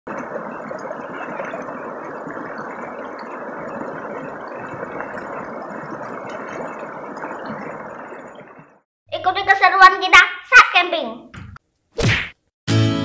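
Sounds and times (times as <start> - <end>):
stream rushing over stones: 0.1 - 8.8.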